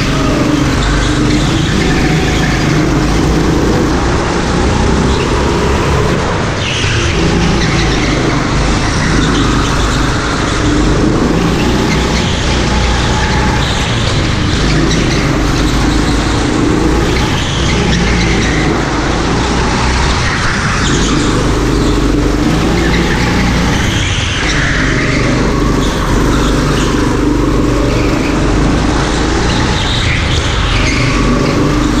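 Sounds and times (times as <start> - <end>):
go-kart engine running hard: 0.0 - 32.0.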